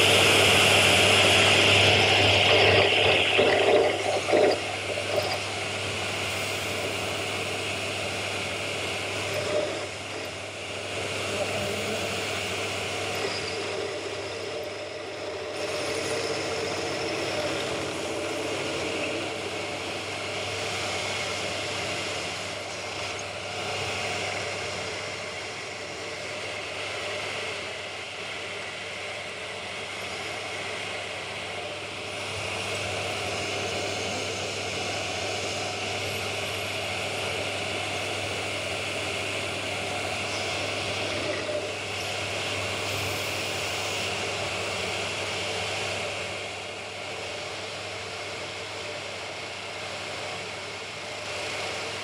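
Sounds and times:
pillar drill running: 0.0 - 52.0.

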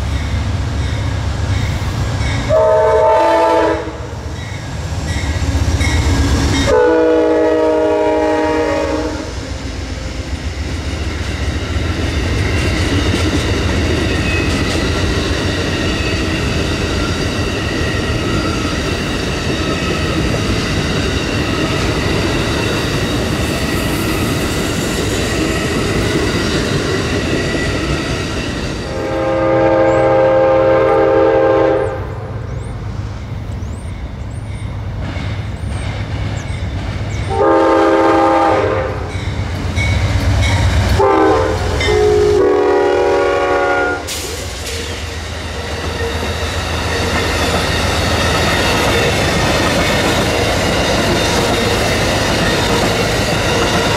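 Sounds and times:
train rumble and rail clatter: 0.0 - 53.9
locomotive horn blast: 2.4 - 4.2, 6.7 - 9.4, 28.9 - 32.3, 37.3 - 39.2, 41.0 - 44.4.

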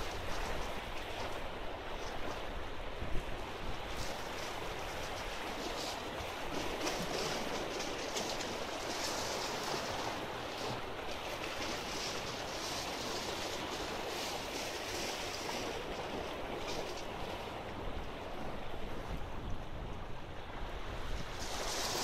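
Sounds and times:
waves washing over rocks: 20.8 - 22.0.

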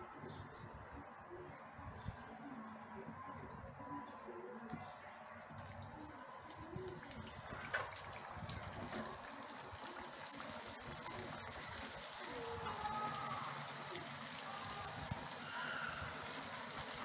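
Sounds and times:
hot oil sizzling and bubbling: 7.4 - 17.0.

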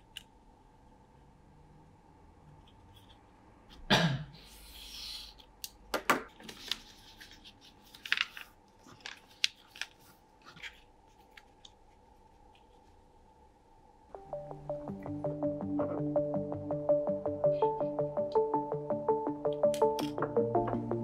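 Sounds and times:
paper sheet rustling: 6.4 - 12.9.

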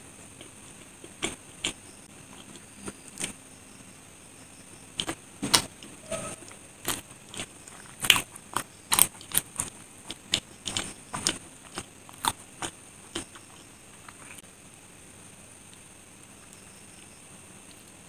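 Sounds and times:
close chewing with wet mouth clicks: 6.5 - 14.4.

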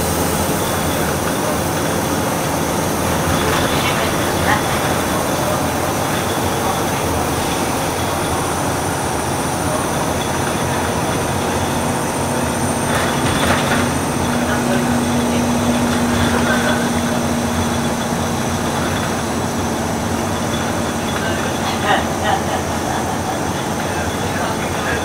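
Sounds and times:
bus engine and road noise: 0.0 - 25.0.

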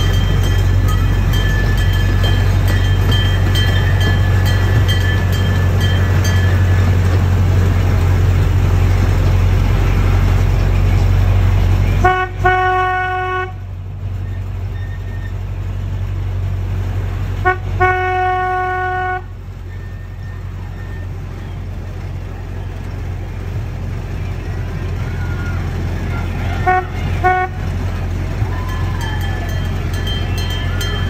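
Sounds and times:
miniature train rumbling: 0.0 - 31.0
train horn: 11.9 - 13.7, 17.4 - 19.4, 26.4 - 27.8.

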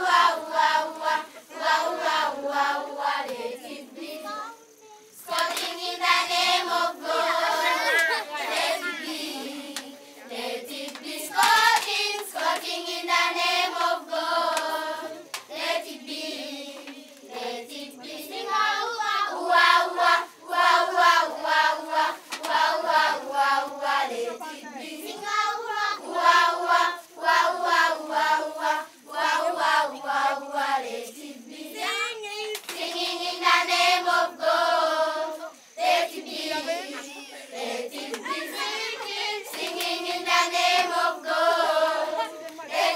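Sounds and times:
children singing: 0.0 - 4.6, 5.2 - 42.9
hand clapping: 5.3 - 5.7, 10.8 - 12.7, 15.3 - 15.5, 22.3 - 22.6, 32.5 - 32.8, 38.1 - 38.4, 39.5 - 39.9.

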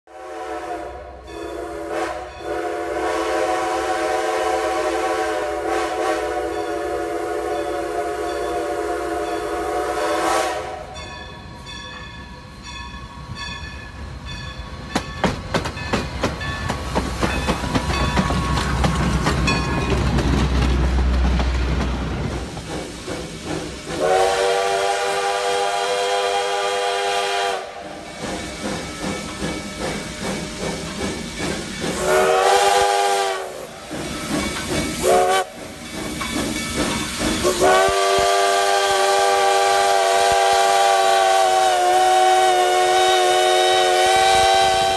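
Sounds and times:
multi-tone steam whistle blasts: 0.1 - 11.1, 23.1 - 29.3, 31.6 - 35.8, 37.3 - 44.9
steam locomotive clattering: 0.1 - 44.9.

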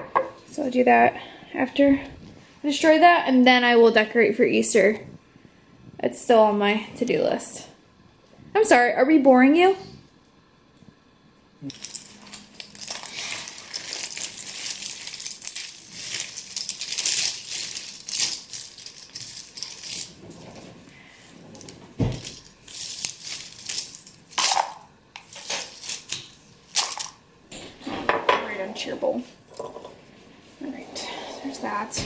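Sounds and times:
puzzle pieces clattering on stone: 11.7 - 20.2, 21.6 - 24.8, 25.4 - 27.2.

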